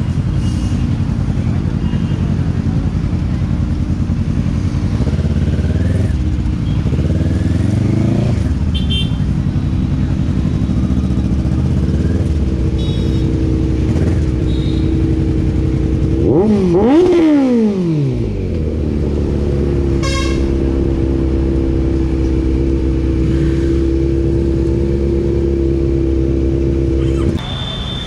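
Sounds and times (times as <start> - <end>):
motorcycle engine idling and revving: 0.0 - 28.0
short high beep: 27.4 - 28.0.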